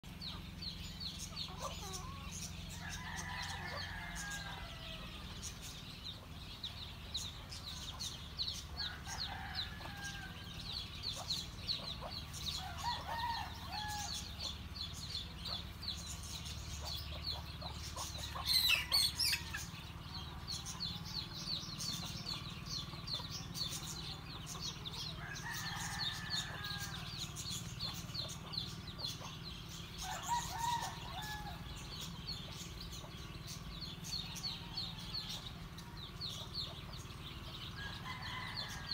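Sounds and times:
chickens clucking: 0.0s - 38.9s.

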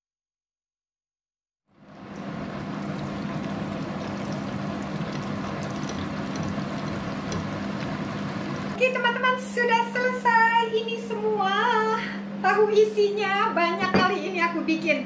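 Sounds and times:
steady low hum: 1.7s - 15.0s
food sizzling in oil: 1.8s - 8.8s.

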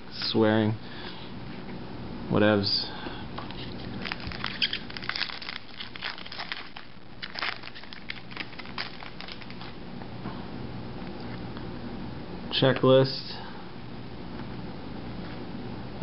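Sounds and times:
plastic wrapper tearing and crinkling: 3.5s - 9.8s.

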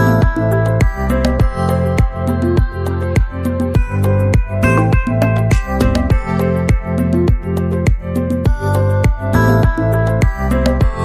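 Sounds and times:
instrumental music with steady beat: 0.0s - 11.0s.

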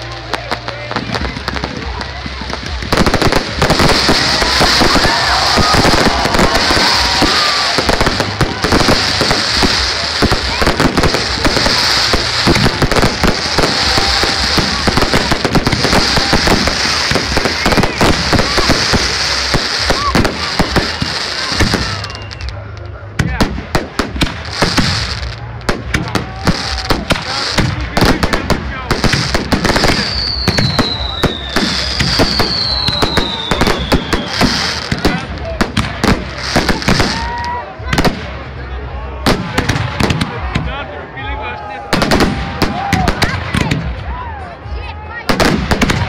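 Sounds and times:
fireworks bangs and crackles: 0.0s - 46.0s
falling firework whistles: 13.5s - 22.6s, 29.7s - 34.8s.

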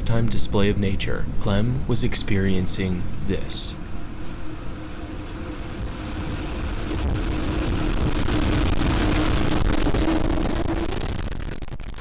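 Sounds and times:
steady droning tone: 1.4s - 12.0s
loud rushing wind roar: 3.4s - 12.0s
debris cracking: 5.8s - 12.0s.

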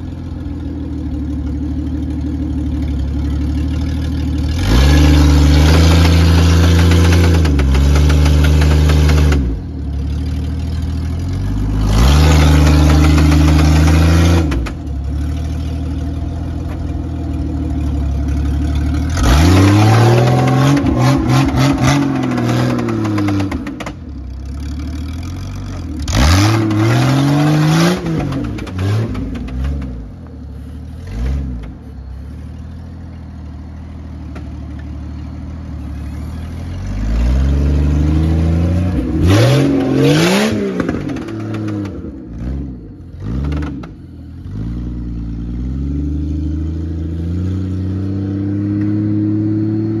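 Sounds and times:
car engine revving: 0.0s - 50.0s.

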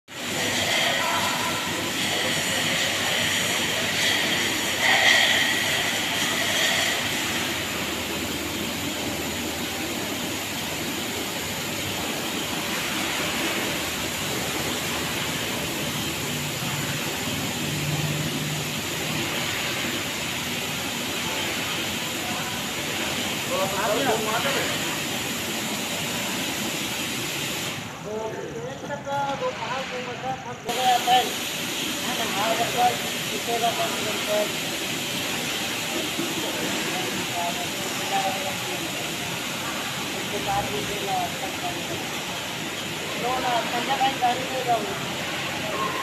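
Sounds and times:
car wash machinery hissing: 0.0s - 46.0s.

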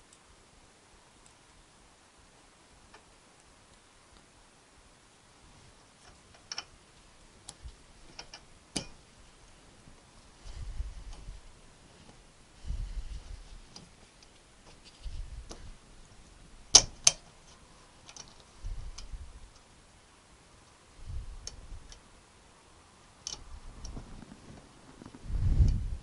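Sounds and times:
metallic circlip clicks: 6.0s - 6.7s, 16.7s - 17.2s, 18.1s - 19.7s, 23.2s - 24.0s
soft low bumps: 23.4s - 26.0s.

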